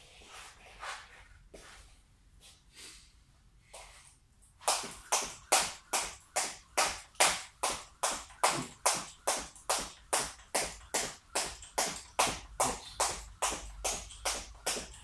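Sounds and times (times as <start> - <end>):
skipping rope slapping mat: 4.6 - 15.0.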